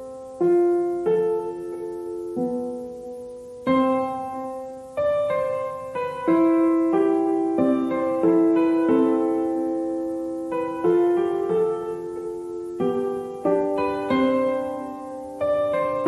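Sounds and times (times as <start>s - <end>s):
slow gentle piano music: 0.0s - 16.0s.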